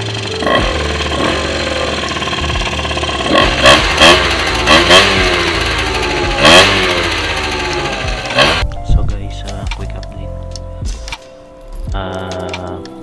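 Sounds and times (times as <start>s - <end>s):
scooter engine idling: 0.0s - 8.7s
scooter engine revving: 0.0s - 8.7s.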